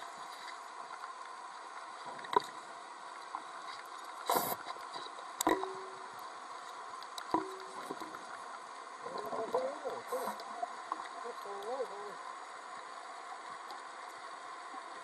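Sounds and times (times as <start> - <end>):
underwater hiss: 4.2 - 4.8.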